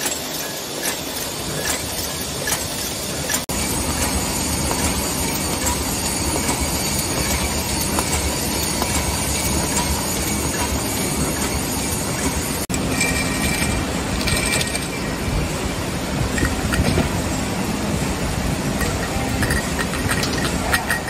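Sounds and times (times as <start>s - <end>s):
machinery rattling: 0.0s - 21.0s
cans clattering on conveyor: 12.7s - 15.1s, 18.8s - 21.0s.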